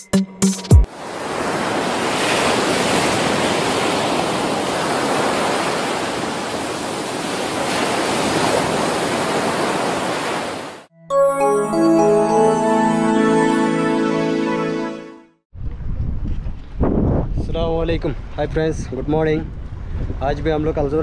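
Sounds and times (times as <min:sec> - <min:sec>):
ocean waves breaking: 0:00.9 - 0:10.9.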